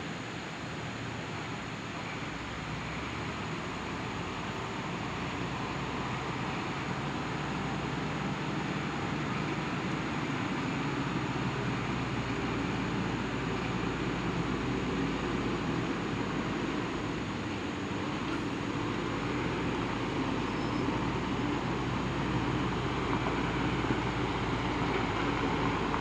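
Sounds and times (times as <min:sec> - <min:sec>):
heavy truck engine running: 0:00.1 - 0:26.0.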